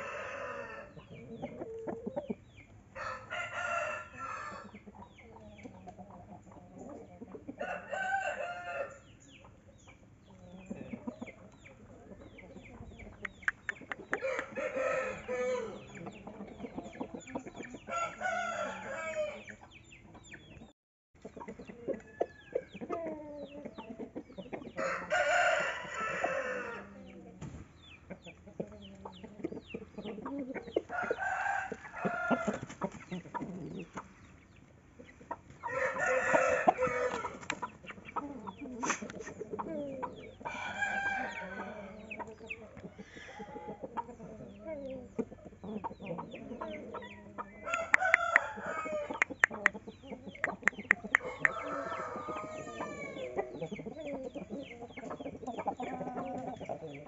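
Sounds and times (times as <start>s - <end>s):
roosters crowing: 0.0s - 2.0s, 2.9s - 4.8s, 7.5s - 9.1s, 14.0s - 19.7s, 24.6s - 27.1s, 30.2s - 33.9s, 35.5s - 57.0s
chickens clucking: 0.0s - 57.0s.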